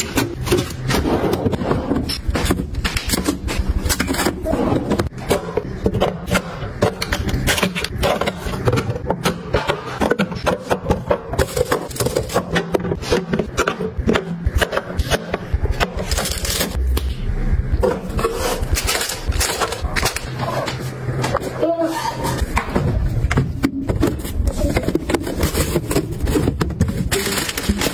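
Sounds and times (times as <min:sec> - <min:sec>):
scraping on plastic: 0:23.5 - 0:27.9.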